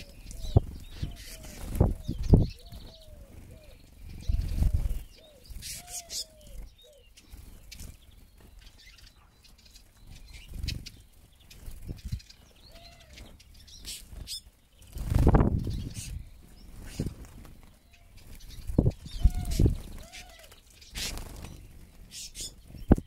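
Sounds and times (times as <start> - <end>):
short arched bird calls: 0.0 - 7.9, 17.8 - 23.0
bird wings fluttering: 0.6 - 2.9, 13.9 - 23.0.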